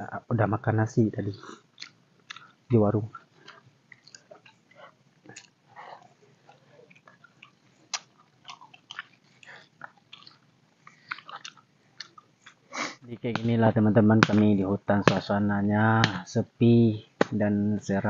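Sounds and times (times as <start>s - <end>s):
close chewing: 1.5s - 12.6s.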